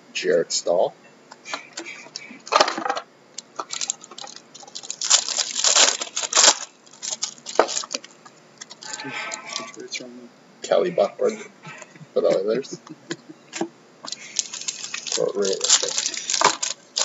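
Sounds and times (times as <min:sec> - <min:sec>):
plastic wrapper crinkling: 0:03.4 - 0:09.8, 0:14.0 - 0:17.0
trading cards shuffling: 0:14.0 - 0:17.0.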